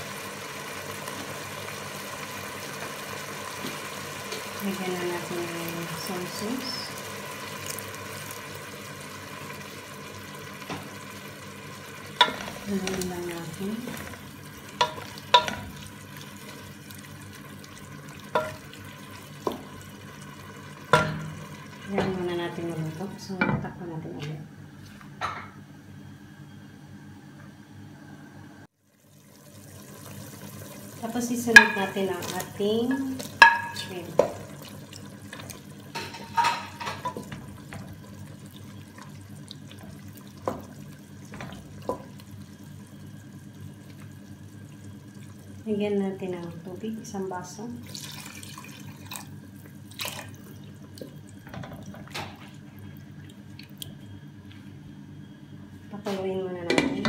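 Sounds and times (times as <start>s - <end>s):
food sizzling in a pan: 0.0s - 23.3s, 28.8s - 49.8s
wooden spatula knocking on pan: 31.6s - 32.0s
liquid bubbling: 37.0s - 46.7s.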